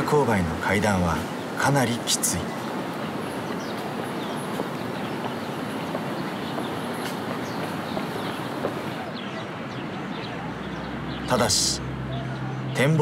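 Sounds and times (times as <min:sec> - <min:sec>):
high bird chirps: 0:02.5 - 0:12.9.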